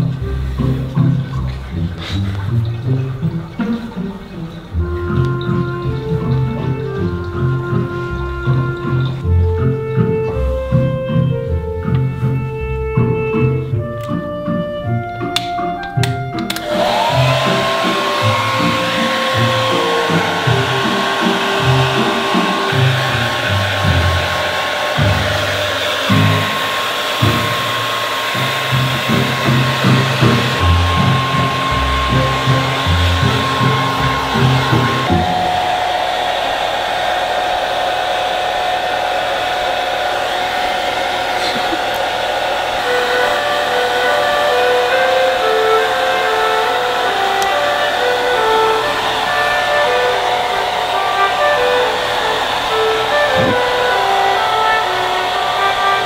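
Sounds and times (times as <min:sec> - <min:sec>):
background music: 0:00.0 - 0:36.4
hair dryer blowing: 0:16.4 - 0:56.0.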